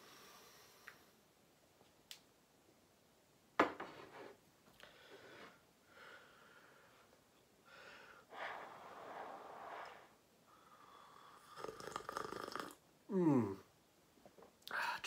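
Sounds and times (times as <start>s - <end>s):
man sipping and slurping: 11.2s - 12.8s.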